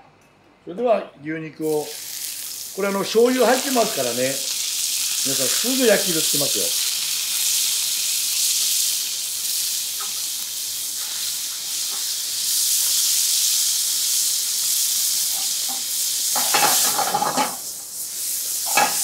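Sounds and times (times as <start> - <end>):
meat sizzling in a frying pan: 1.7 - 19.0.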